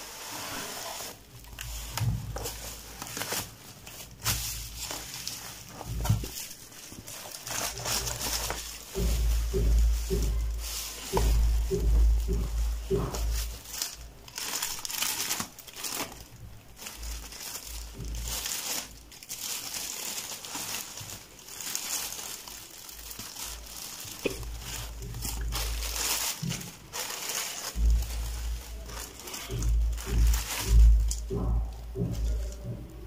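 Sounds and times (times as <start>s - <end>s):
plastic packaging crinkling: 0.0s - 32.8s
dull low thuds: 7.7s - 15.0s, 27.7s - 33.0s.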